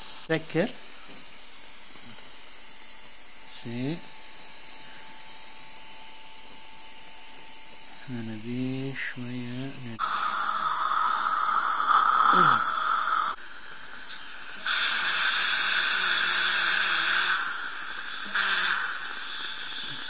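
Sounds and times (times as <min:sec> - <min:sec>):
dental drill whine: 0:00.0 - 0:20.0
saline irrigation and suction hiss: 0:08.0 - 0:20.0.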